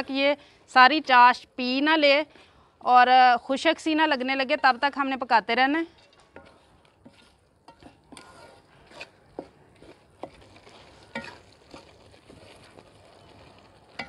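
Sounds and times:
faint sizzle: 0.0 - 14.0
wooden spatula scraping metal pot: 4.2 - 14.0.

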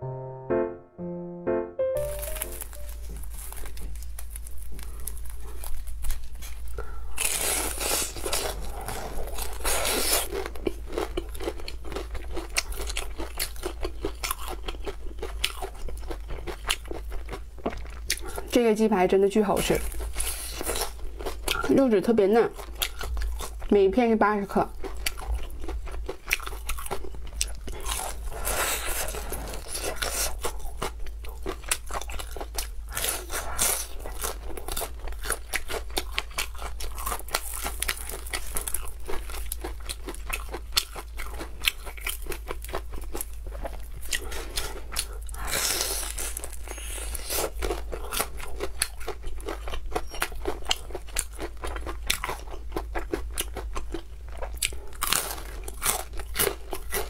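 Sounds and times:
crunching and chewing fried chicken: 2.0 - 57.0.

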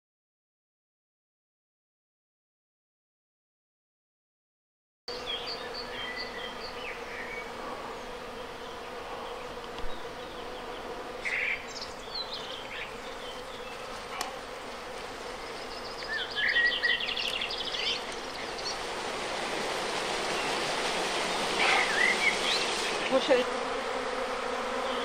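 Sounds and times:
honeybees buzzing: 5.1 - 25.0.

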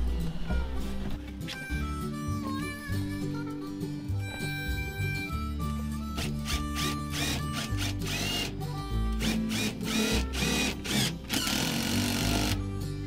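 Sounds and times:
country music: 0.0 - 13.0
cordless drill spinning: 6.2 - 8.6, 9.2 - 12.6.

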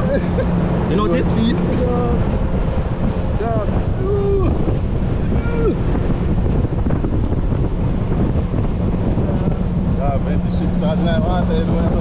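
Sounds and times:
waves rushing: 0.0 - 12.0
wind buffeting microphone: 0.0 - 12.0.

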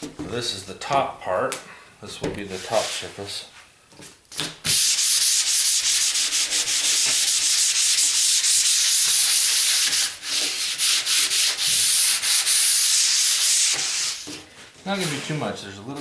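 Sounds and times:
sandpaper sanding wood: 4.7 - 14.3, 14.9 - 15.4.

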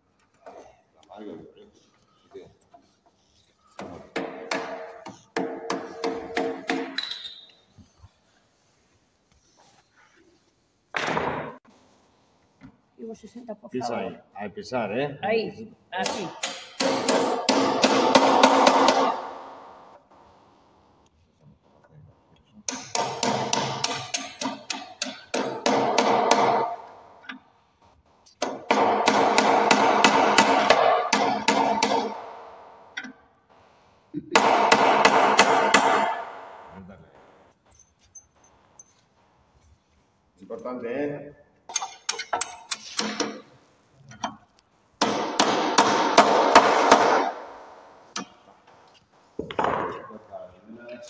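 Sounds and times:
hammer striking a bolt: 3.8 - 7.3, 16.1 - 19.8, 22.7 - 27.4, 28.4 - 33.2, 34.4 - 36.6, 41.7 - 43.4.

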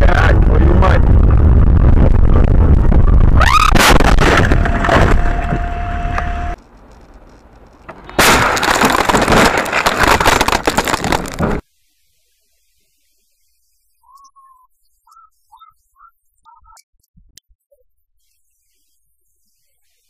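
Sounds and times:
loud car crash: 3.4 - 6.0, 7.9 - 11.6.

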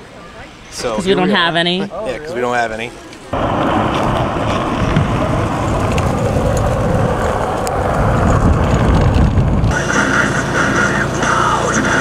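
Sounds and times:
wind buffeting microphone: 3.3 - 9.9
scooter wheels rolling on asphalt: 3.3 - 11.1.

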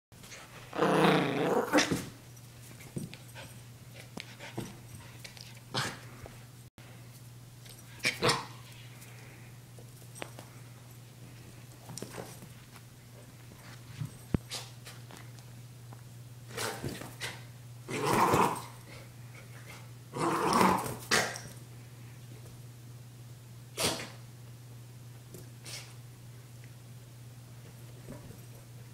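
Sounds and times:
puppy growling: 0.7 - 2.1, 17.9 - 18.8, 20.1 - 21.4.

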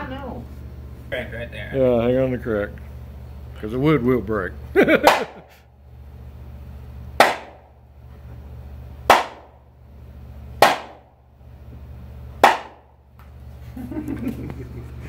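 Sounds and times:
hammer striking wooden board: 5.0 - 5.4, 7.2 - 7.6, 9.1 - 9.6, 10.6 - 11.1, 12.4 - 12.9.

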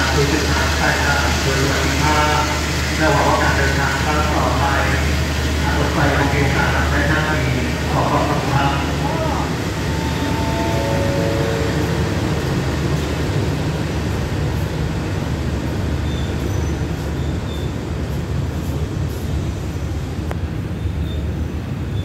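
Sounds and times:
train rumbling along track: 0.0 - 22.0
stepped falling tones: 8.3 - 13.3.

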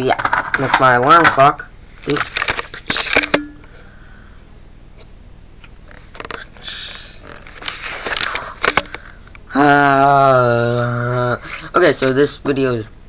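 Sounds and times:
camera handling clicks and scrapes: 7.3 - 9.0.

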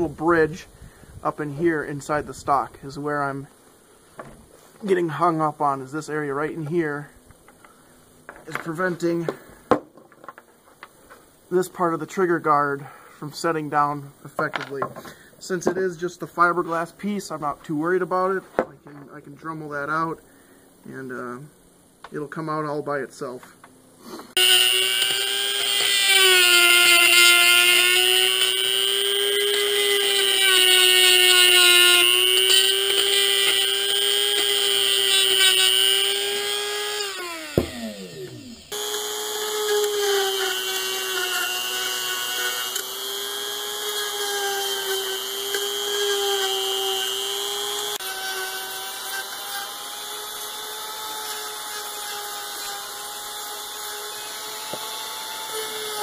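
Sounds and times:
rotary tool grinding whine: 24.3 - 56.0
rotary tool spinning down: 24.4 - 30.4, 31.0 - 44.0.

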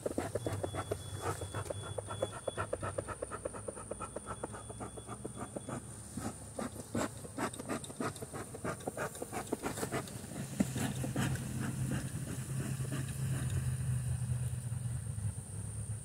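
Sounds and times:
honeybees buzzing: 0.0 - 2.1
bee smoker puffing: 0.0 - 13.8.

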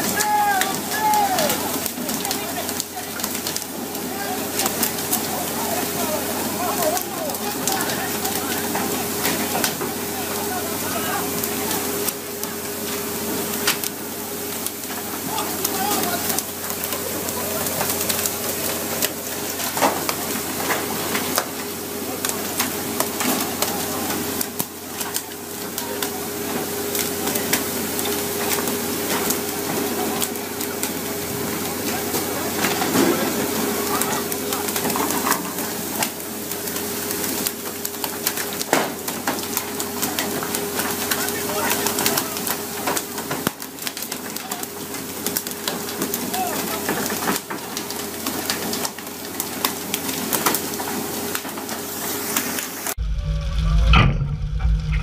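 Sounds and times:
water churning and spraying: 0.0 - 55.0
boat engine hum: 53.0 - 55.0.

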